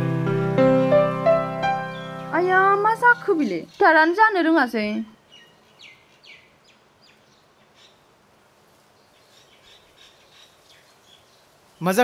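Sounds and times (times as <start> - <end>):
background hiss: 0.0 - 12.0
bird chirps: 1.7 - 4.3, 4.9 - 8.1, 9.0 - 11.9.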